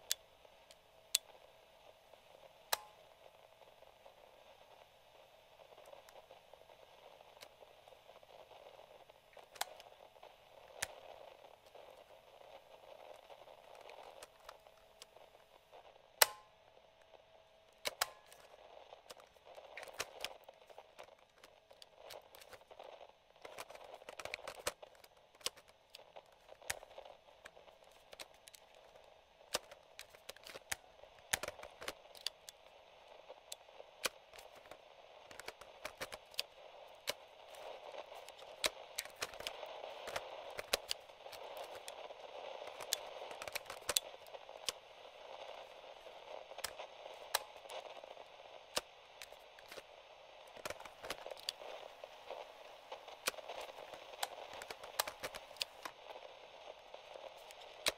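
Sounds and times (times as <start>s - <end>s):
radio static hiss: 0.0s - 57.9s
cassette recorder buttons clicking: 9.4s - 9.9s, 16.1s - 16.6s, 17.8s - 22.7s, 23.4s - 32.6s, 33.3s - 44.9s, 50.5s - 51.8s, 53.2s - 56.0s.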